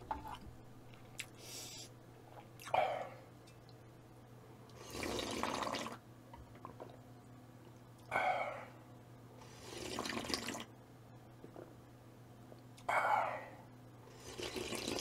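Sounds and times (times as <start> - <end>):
person slurping soup: 4.8 - 6.0, 9.4 - 10.6, 14.1 - 15.0.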